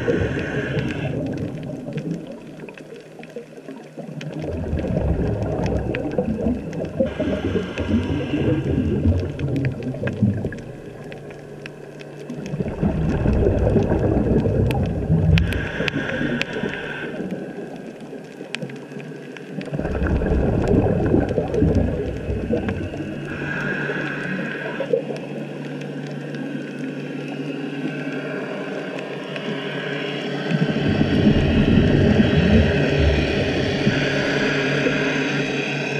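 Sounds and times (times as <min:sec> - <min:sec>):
underwater bubbles gurgling: 0:00.0 - 0:35.9
regulator hiss: 0:15.4 - 0:17.6, 0:22.4 - 0:25.4.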